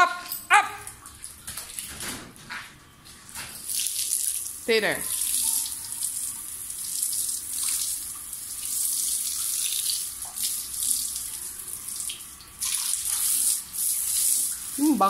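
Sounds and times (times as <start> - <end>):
hose spray splashing: 12.6 - 15.0.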